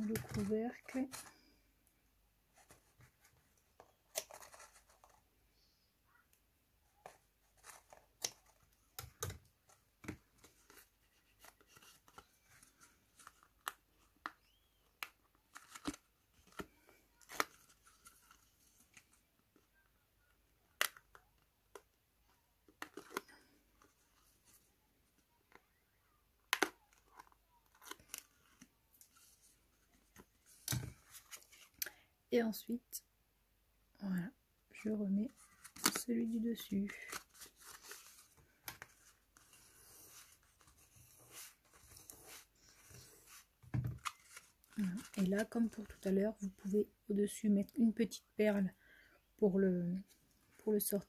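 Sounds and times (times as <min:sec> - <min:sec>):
paper and card rustling: 0:00.0 - 0:01.6, 0:02.5 - 0:05.3, 0:06.9 - 0:19.8, 0:22.6 - 0:24.8, 0:26.5 - 0:31.8, 0:35.2 - 0:46.7.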